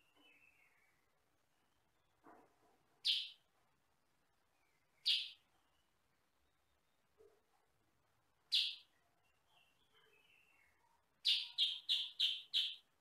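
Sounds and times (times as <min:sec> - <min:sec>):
bird calls: 0:03.0 - 0:03.4, 0:04.6 - 0:05.9, 0:08.5 - 0:12.9.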